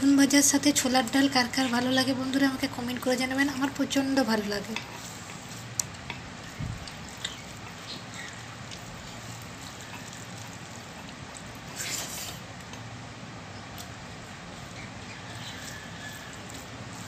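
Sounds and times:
steady background hiss: 0.0 - 17.0
fingers mixing rice on metal plate: 0.6 - 12.9, 13.7 - 17.0.

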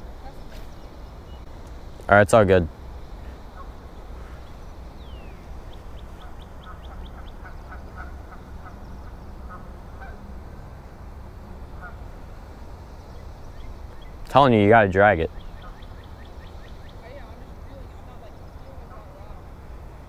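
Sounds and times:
low steady rumble: 0.0 - 20.0
distant waterfowl honks: 2.8 - 19.6
high bird chirps: 15.3 - 18.7.

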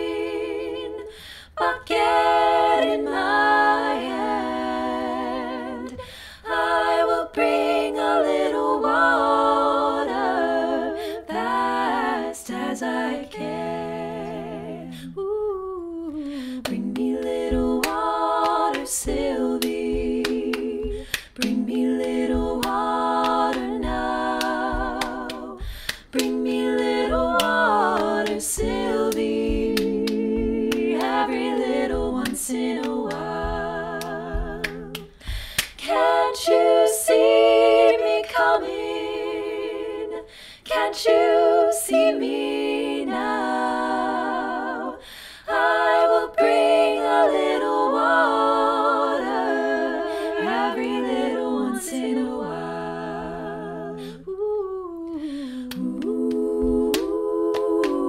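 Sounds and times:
voices singing in close harmony: 0.0 - 58.0
body percussion claps and snaps: 16.6 - 35.9, 55.7 - 58.0.

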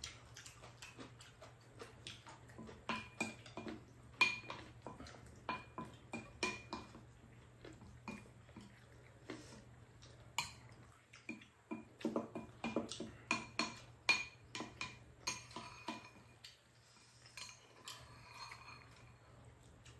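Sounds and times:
utensils clinking on ceramic bowls: 12.6 - 16.4, 17.4 - 19.3.

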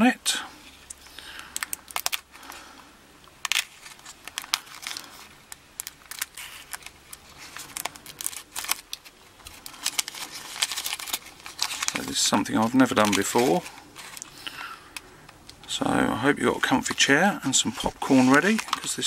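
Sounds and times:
paper and tape tearing: 18.0 - 18.9.

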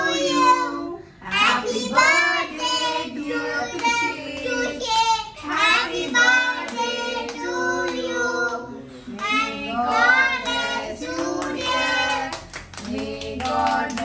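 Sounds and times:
child singing: 0.0 - 14.0
family singing together: 0.0 - 14.0.

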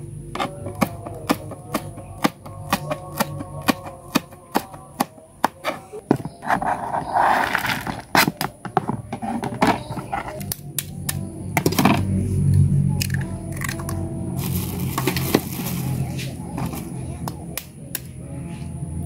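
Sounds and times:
knife chopping on plastic board: 0.4 - 6.4
rustly handling noise: 5.6 - 10.5, 14.4 - 17.0.

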